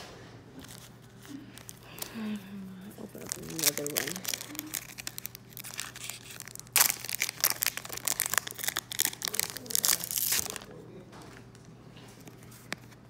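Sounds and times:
foil wrapper crinkling and ripping: 0.6s - 10.7s.

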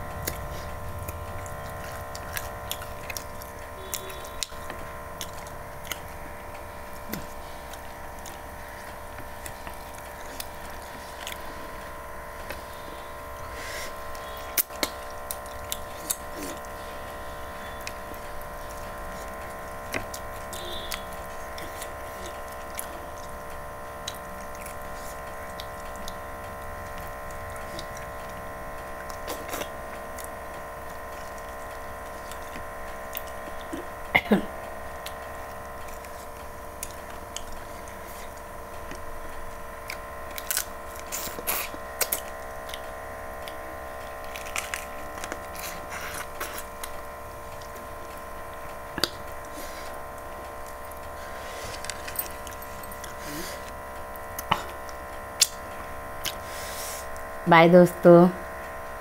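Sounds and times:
chewing and biting food: 0.0s - 57.3s
steady hum: 0.0s - 59.0s
wet mouth clicks and smacks: 55.4s - 55.6s.

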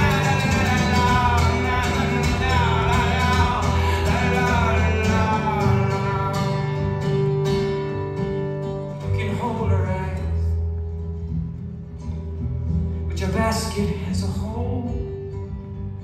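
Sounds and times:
man singing: 0.0s - 7.4s, 9.0s - 10.6s, 13.1s - 15.2s
strummed acoustic guitar: 0.0s - 16.0s.

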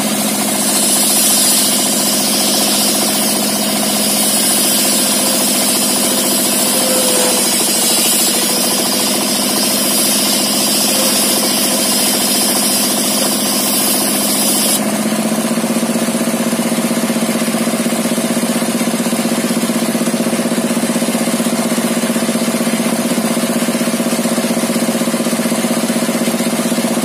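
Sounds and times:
saw blade ripping wood: 0.0s - 14.8s
diesel engine running: 0.0s - 20.9s.

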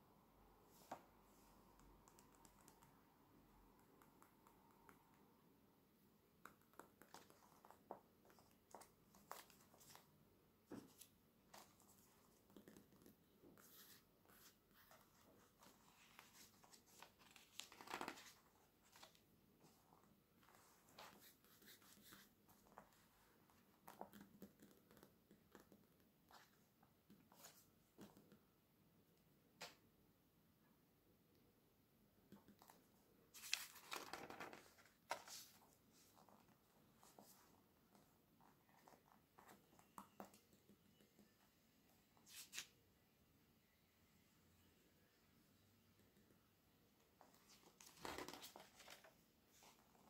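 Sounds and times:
page turning rustle: 7.1s - 10.1s, 14.4s - 19.2s, 33.3s - 36.1s, 47.3s - 49.8s.

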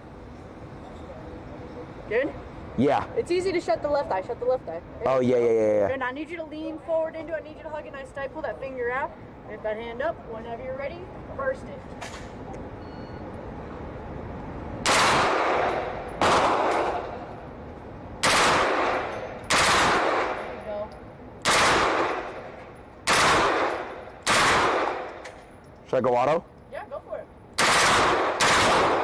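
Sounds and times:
automatic gunfire bursts echoing: 18.2s - 20.4s, 21.4s - 22.3s, 23.1s - 25.1s, 27.6s - 29.0s.

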